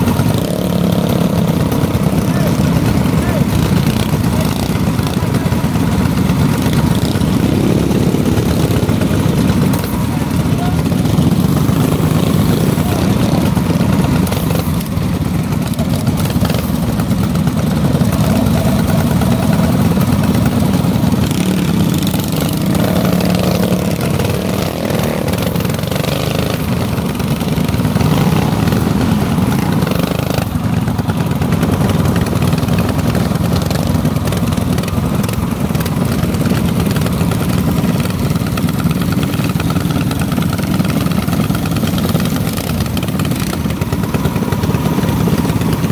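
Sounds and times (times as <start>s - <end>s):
minibike engine running: 0.0s - 45.9s.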